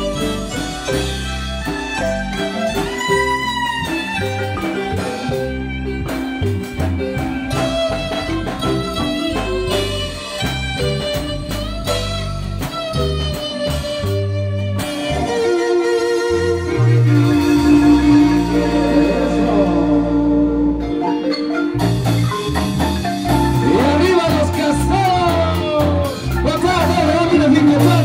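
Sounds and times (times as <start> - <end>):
electronic keyboard chords: 0.0 - 28.0
marimba playing: 0.0 - 28.0
walking bass line: 0.0 - 28.0.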